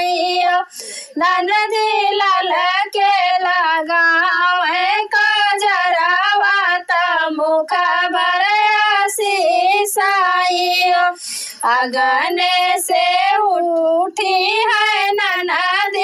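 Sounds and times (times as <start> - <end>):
short breaths: 0.7 - 1.2, 11.2 - 11.7.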